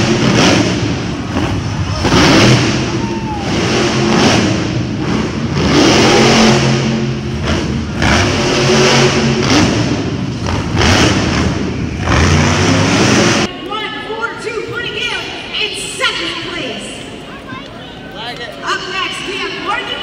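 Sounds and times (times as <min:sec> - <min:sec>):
truck engine revving: 0:00.0 - 0:13.5.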